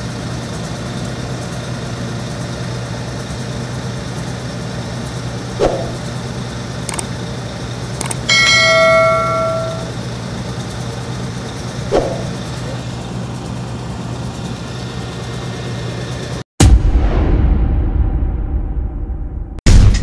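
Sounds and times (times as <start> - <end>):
diesel engine running: 0.0 - 16.4
mouse clicks: 8.0 - 8.3
notification bell chime: 8.0 - 10.0.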